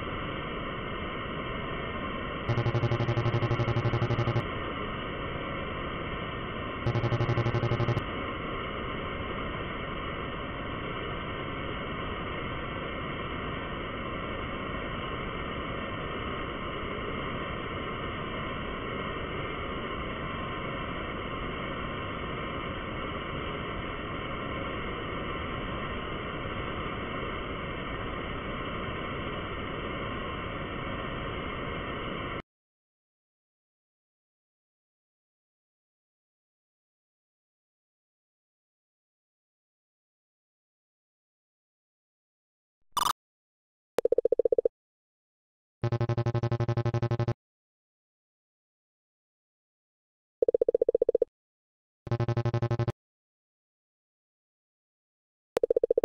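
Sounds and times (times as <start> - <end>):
noisy rumbling drone: 0.3 - 19.8, 45.8 - 47.4, 52.1 - 53.0
loud low buzzing tone: 2.5 - 4.5, 6.9 - 8.1, 45.8 - 47.4, 52.1 - 53.0.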